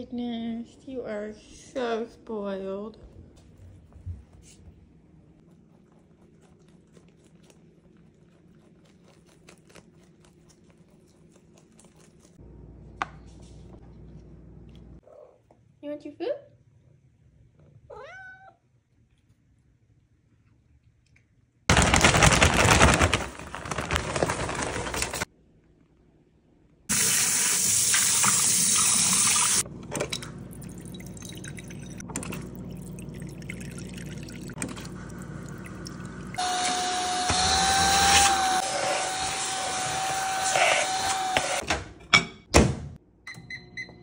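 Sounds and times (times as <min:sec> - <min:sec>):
cat meowing: 0:17.9 - 0:18.6
tap water running into sink: 0:26.9 - 0:36.4
vacuum cleaner whine: 0:36.4 - 0:41.6.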